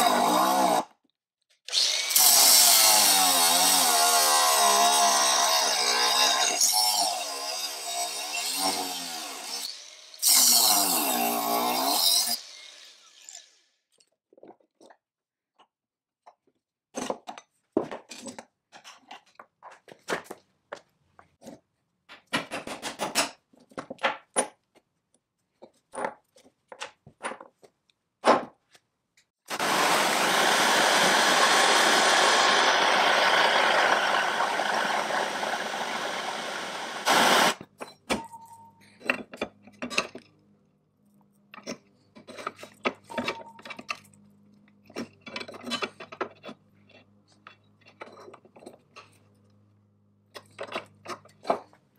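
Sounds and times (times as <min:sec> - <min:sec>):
gas torch flame hissing: 0:31.1 - 0:37.6.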